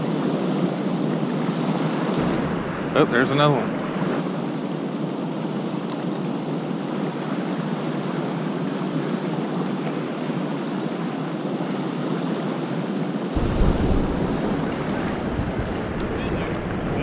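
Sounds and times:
wind rumble on microphone: 0:00.0 - 0:04.8, 0:13.3 - 0:17.0.

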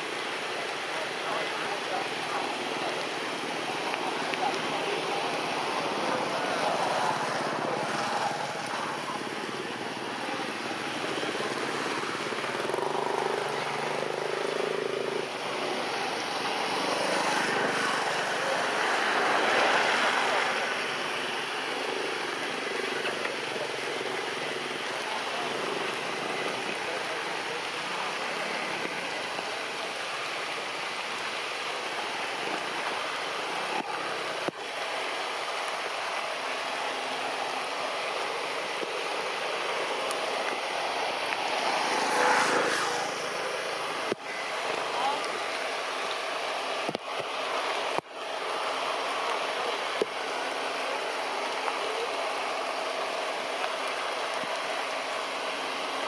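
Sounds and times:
rain falling on trees: 0:00.0 - 0:56.0.

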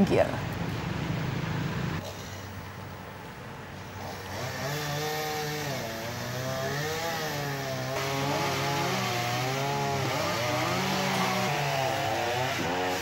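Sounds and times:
chainsaw engine revving: 0:03.9 - 0:13.0.

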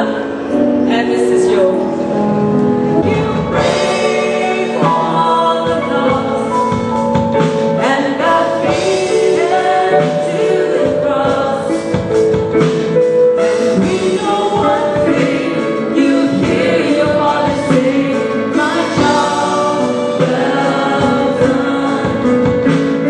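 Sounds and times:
group singing gospel song: 0:02.8 - 0:23.0
woman singing into microphone: 0:02.9 - 0:07.1, 0:07.7 - 0:12.2, 0:13.7 - 0:23.0.

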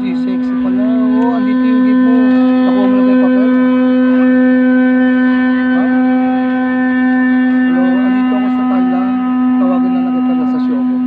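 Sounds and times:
droning tone: 0:00.0 - 0:11.0
faint voices: 0:00.0 - 0:11.0.

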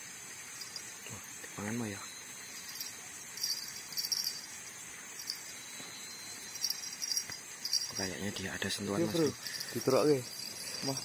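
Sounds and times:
night insects chirping: 0:00.0 - 0:11.0.

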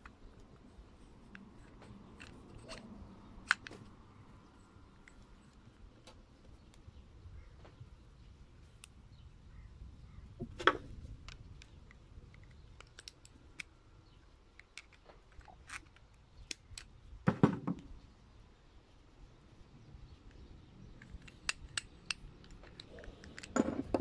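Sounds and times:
small metallic clicks: 0:00.0 - 0:04.1, 0:10.6 - 0:17.0, 0:20.2 - 0:24.0.

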